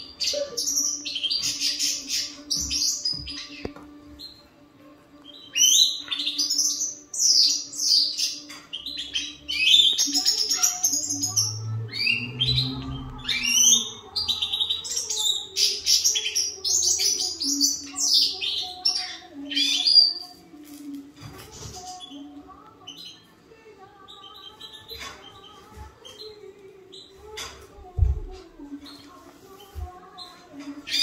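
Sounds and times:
goldfinch twittering song: 5.2s - 20.4s.

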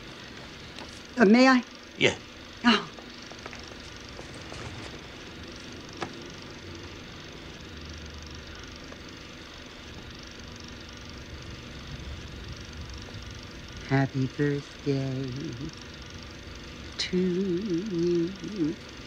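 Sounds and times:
low hiss and hum: 0.0s - 19.0s
faint rustling: 3.0s - 6.4s.

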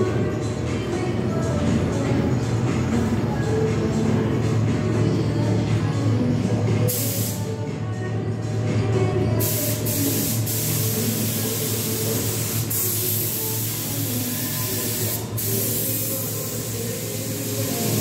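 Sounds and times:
spray gun air hiss: 6.9s - 7.5s, 9.4s - 18.0s.

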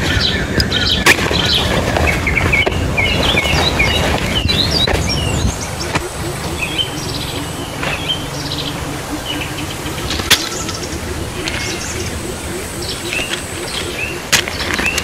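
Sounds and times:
birds chirping: 0.0s - 15.0s
steady low rumble: 0.0s - 15.0s.

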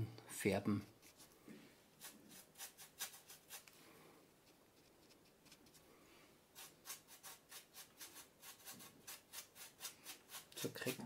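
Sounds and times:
paintbrush scratching on foam: 1.0s - 1.4s, 2.0s - 3.8s, 4.4s - 5.9s, 6.5s - 11.0s.

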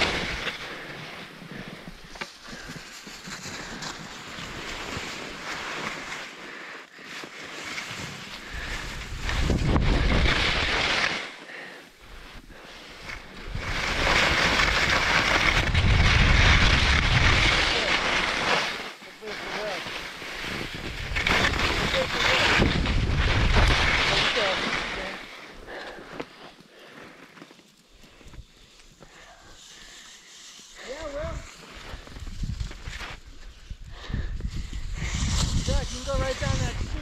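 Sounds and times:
skis scraping over snow: 0.0s - 37.0s
wind on microphone: 8.4s - 10.7s, 13.1s - 17.9s, 20.4s - 24.2s, 31.3s - 37.0s.

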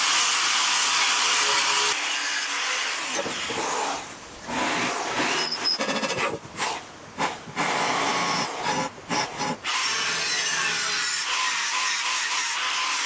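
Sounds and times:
angle grinder cutting steel: 9.4s - 13.0s
electric drill boring into steel: 9.6s - 13.0s.

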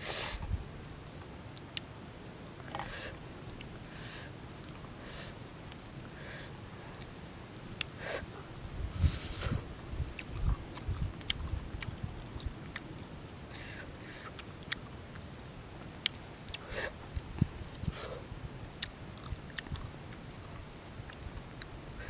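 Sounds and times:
person chewing with mouth clicks: 10.2s - 12.9s, 14.2s - 15.3s, 18.8s - 21.7s.

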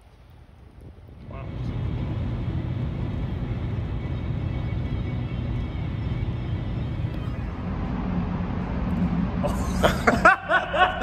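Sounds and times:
car interior road noise: 1.1s - 11.0s.

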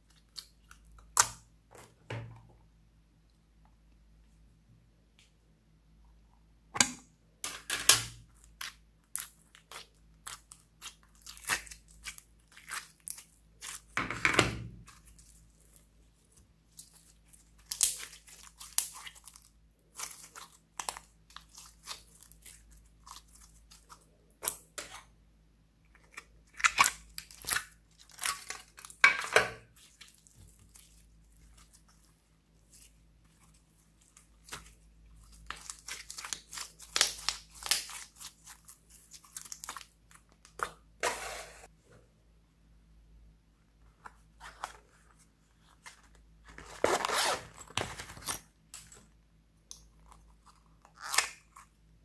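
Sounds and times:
slime squelching by hand: 8.3s - 14.0s, 14.8s - 25.0s, 26.0s - 40.8s.

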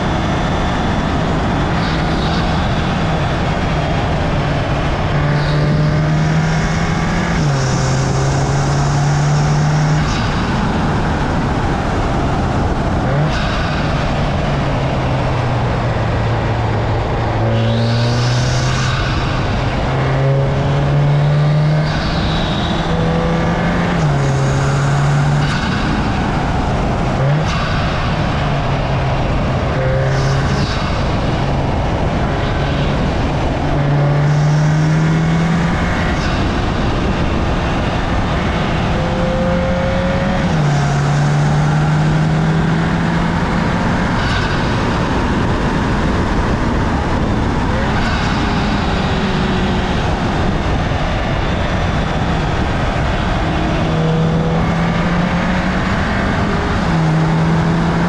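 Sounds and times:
car engine accelerating: 0.0s - 58.0s
road and wind noise: 0.0s - 58.0s.

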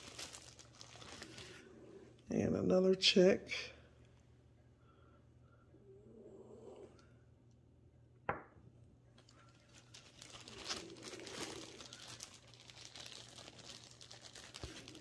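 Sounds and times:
plastic bag crinkling: 0.0s - 1.9s, 9.2s - 15.0s.

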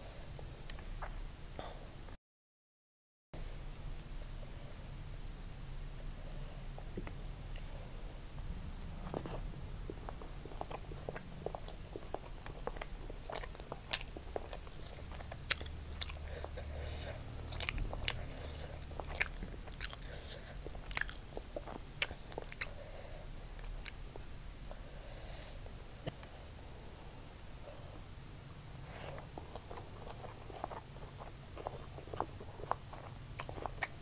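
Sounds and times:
chewing and crunching food: 9.0s - 24.8s, 26.0s - 34.0s.

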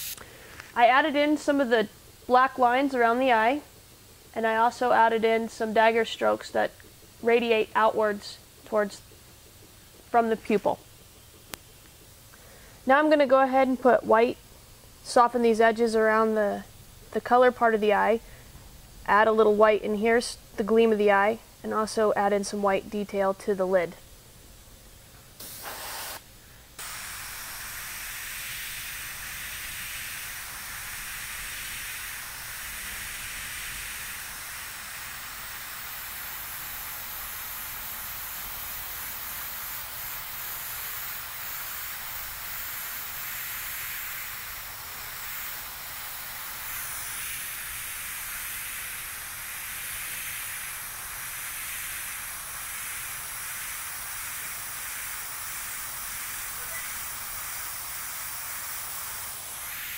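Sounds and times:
airbrush spraying air hiss: 0.0s - 11.4s, 25.3s - 59.9s.

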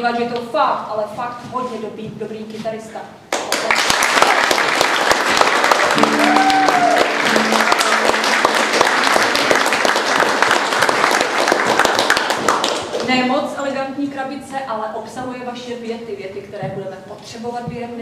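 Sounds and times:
audience applauding: 3.4s - 13.1s.

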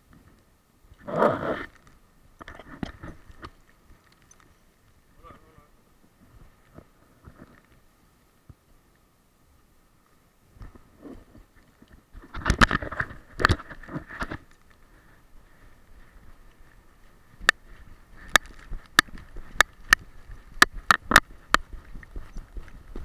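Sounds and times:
sharp clicks: 18.2s - 22.8s.

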